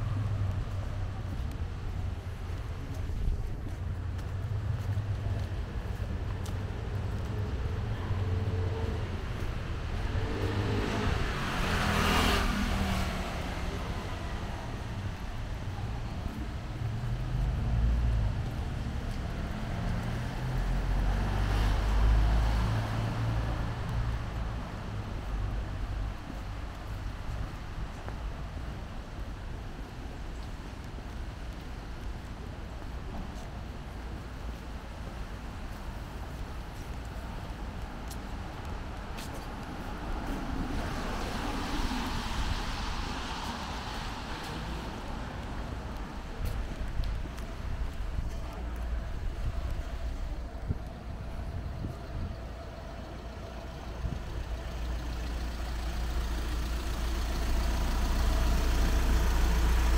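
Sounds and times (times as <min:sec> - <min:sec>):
vehicle passing: 0:04.4 - 0:15.0, 0:39.2 - 0:59.9
low engine rumble: 0:12.5 - 0:59.9.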